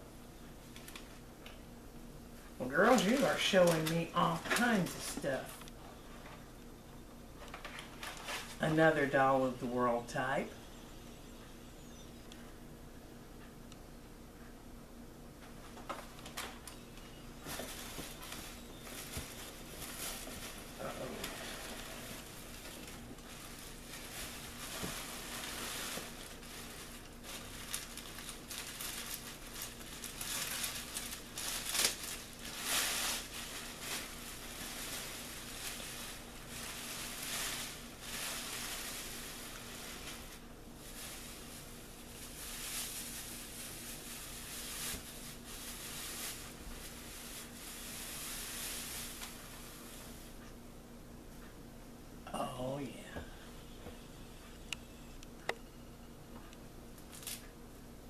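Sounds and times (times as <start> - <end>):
plastic bags crinkling: 2.6 - 5.7, 7.4 - 10.1, 15.7 - 50.3, 57.0 - 57.4.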